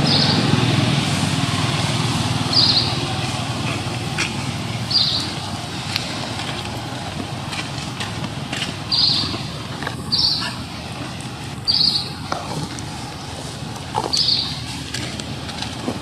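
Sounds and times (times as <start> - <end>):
steady low rumble: 0.0 - 16.0.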